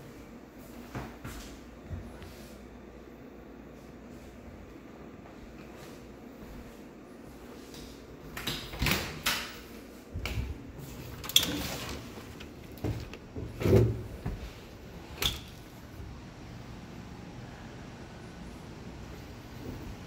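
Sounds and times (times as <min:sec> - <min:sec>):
door opening and shutting: 0:11.2 - 0:14.1, 0:15.0 - 0:15.8.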